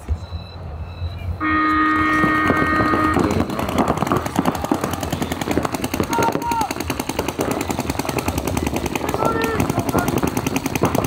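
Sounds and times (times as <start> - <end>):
horn-like tone: 0.3 - 3.4
paintball markers firing: 2.3 - 11.0.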